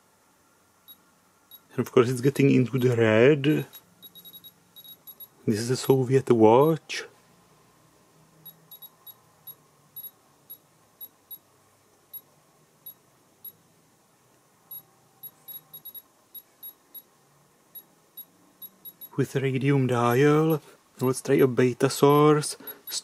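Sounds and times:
short high-pitched beeps: 0.9s - 1.7s, 2.8s - 5.4s, 8.5s - 11.4s, 14.7s - 17.1s, 17.8s - 19.2s, 22.6s - 23.0s.

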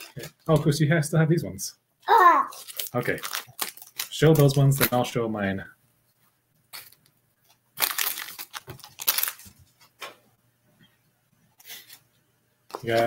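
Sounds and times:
foil wrapper crinkling and tearing: 0.0s - 0.7s, 2.5s - 5.0s, 7.7s - 9.9s.

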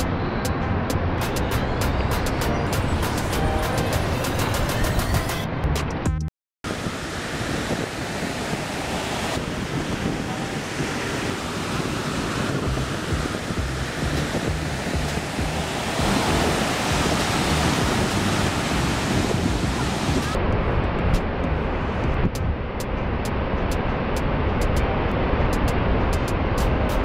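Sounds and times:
ocean surf breaking: 6.7s - 20.4s
wind buffeting microphone: 6.7s - 27.0s.

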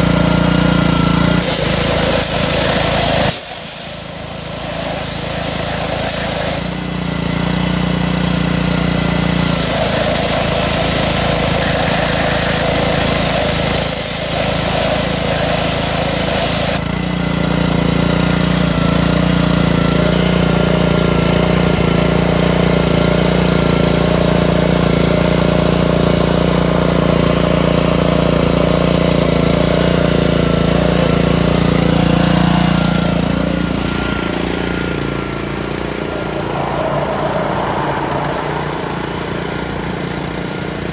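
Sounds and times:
pressure washer engine running: 0.0s - 40.9s
water jet hissing: 0.6s - 16.8s.

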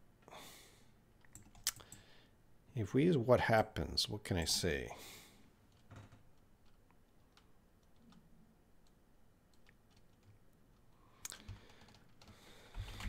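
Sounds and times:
keyboard and mouse clicks: 1.2s - 2.0s, 5.7s - 13.0s.

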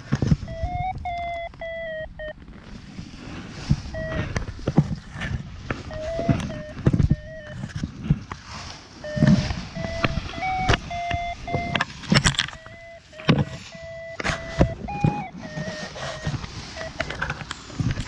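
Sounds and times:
short pitched tones: 0.4s - 2.5s, 3.8s - 4.4s, 5.8s - 7.7s, 9.0s - 17.3s
camera rubbing against clothing: 2.5s - 18.0s.

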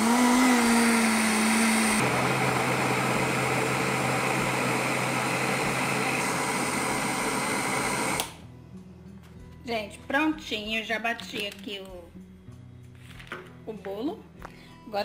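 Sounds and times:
blender motor running: 0.0s - 8.4s.

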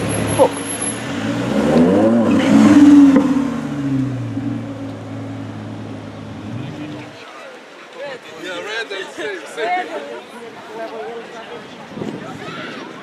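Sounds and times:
sports car accelerating past: 0.0s - 7.1s.

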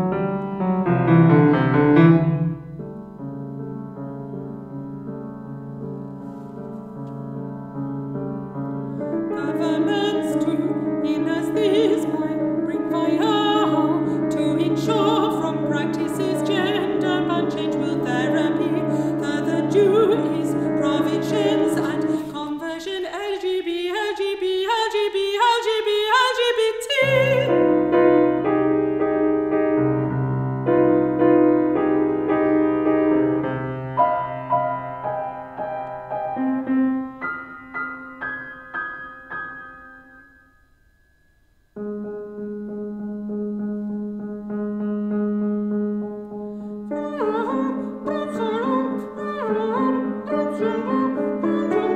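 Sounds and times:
piano accompaniment: 0.0s - 23.7s, 26.9s - 51.9s
woman singing with vibrato: 9.2s - 27.6s, 46.9s - 51.9s.

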